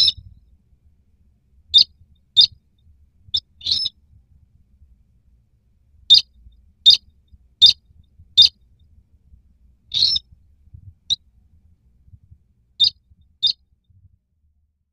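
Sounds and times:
short high-pitched bird calls: 0.0s - 0.2s, 3.4s - 3.9s, 9.9s - 10.3s, 12.8s - 13.6s.

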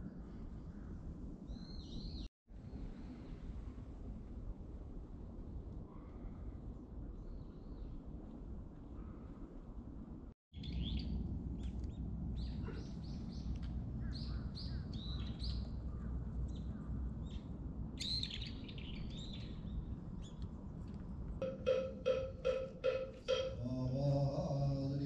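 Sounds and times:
small birds chirping: 10.6s - 20.5s.

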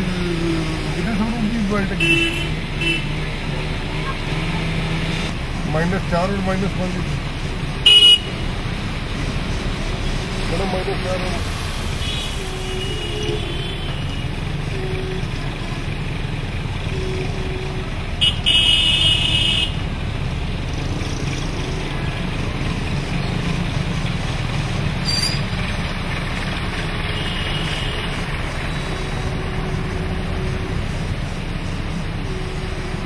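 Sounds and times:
vehicle engines running: 0.0s - 33.0s
vehicles wading through water: 0.0s - 33.0s
vehicle horn: 1.9s - 3.2s, 7.8s - 8.4s, 12.0s - 15.8s, 16.9s - 19.8s, 27.1s - 30.8s, 32.2s - 33.0s.

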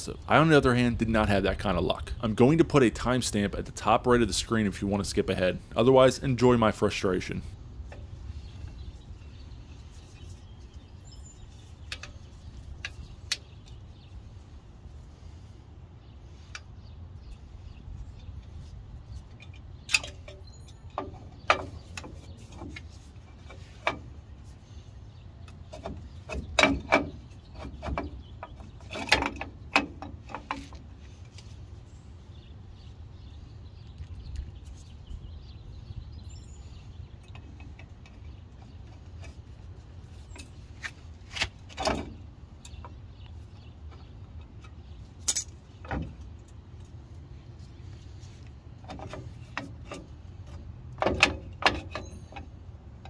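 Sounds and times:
steady low rumble: 0.0s - 26.6s
metal brake parts clinking: 45.2s - 45.7s.

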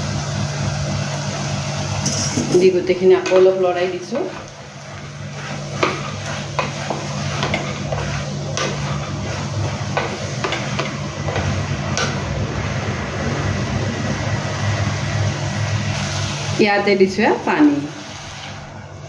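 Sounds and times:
frying sizzle: 0.0s - 19.0s
steady low hum: 0.0s - 19.0s
spatula scraping pot: 2.5s - 12.2s.

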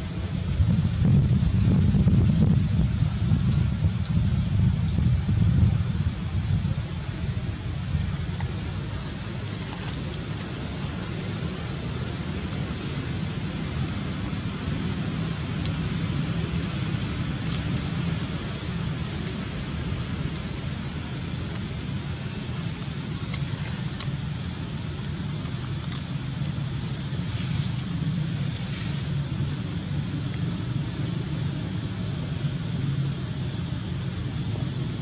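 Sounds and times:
low background rumble: 0.0s - 35.0s
dry leaves crackling: 6.2s - 31.2s.

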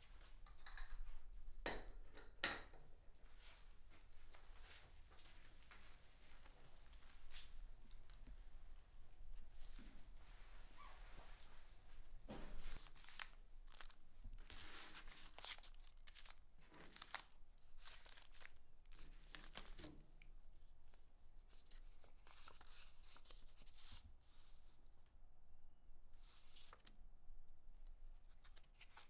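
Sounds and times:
envelope tearing and paper rustling: 12.8s - 19.9s.

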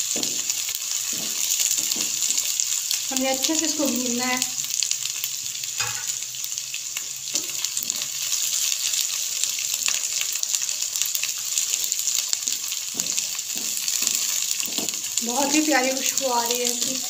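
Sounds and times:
spatula scraping and stirring: 0.0s - 2.9s, 7.3s - 10.6s, 11.3s - 17.0s
food sizzling in hot oil: 0.0s - 17.0s.

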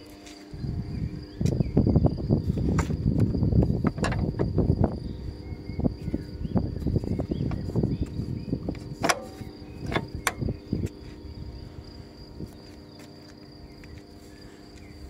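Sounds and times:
high insect trill: 0.0s - 15.0s
latch rubbing and knocking: 3.8s - 4.6s, 9.0s - 10.5s.

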